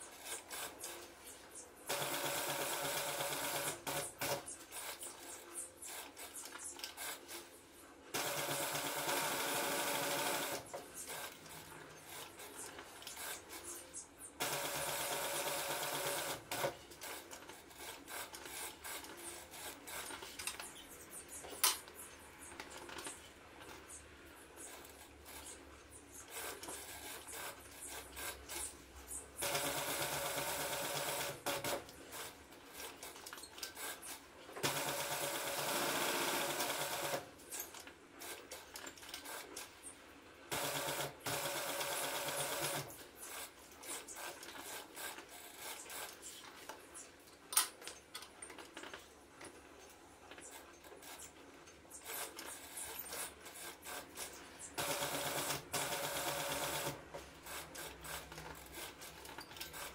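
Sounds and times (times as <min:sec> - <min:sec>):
sewing machine stitching: 0:01.9 - 0:07.4, 0:08.2 - 0:13.8, 0:14.4 - 0:20.6, 0:29.4 - 0:39.6, 0:40.5 - 0:46.4, 0:52.0 - 0:59.9
small clicks and handling: 0:19.9 - 0:20.8, 0:46.1 - 0:52.5.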